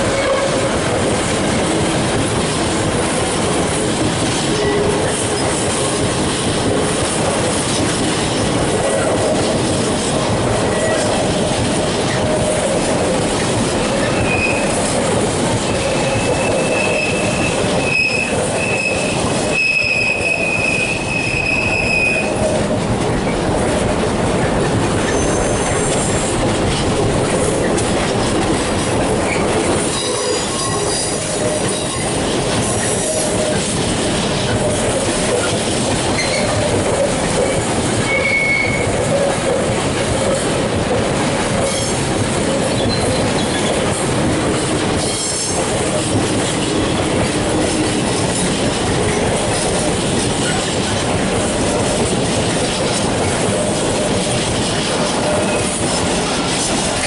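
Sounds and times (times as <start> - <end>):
train wheels clattering on rails: 0.0 - 57.0
high-pitched wheel squeal: 15.7 - 22.4, 25.1 - 25.9, 36.2 - 36.6.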